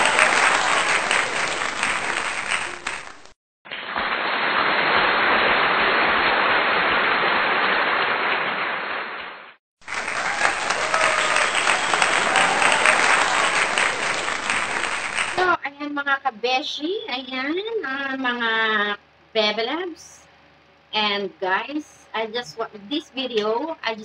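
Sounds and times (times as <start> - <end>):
crowd applause: 0.0 - 9.1, 9.8 - 15.5.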